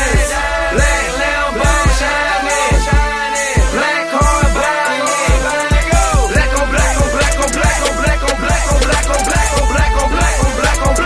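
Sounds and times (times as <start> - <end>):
deep sliding bass notes: 0.0 - 3.8, 6.0 - 11.0
hip hop beat: 0.0 - 11.0
hi-hat ticks: 2.7 - 11.0.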